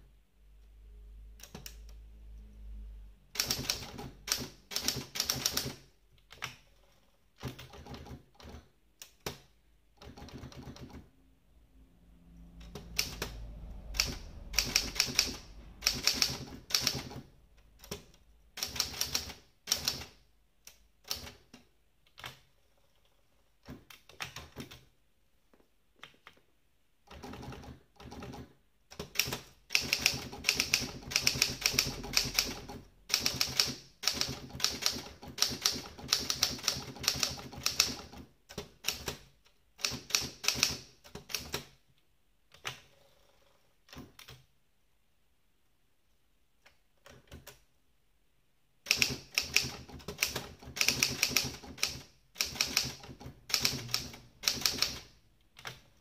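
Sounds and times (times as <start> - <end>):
manual typewriter keystrokes: 3.3 - 11.1, 12.6 - 24.9, 27.0 - 41.8, 42.5 - 44.5, 47.0 - 47.7, 48.8 - 56.0.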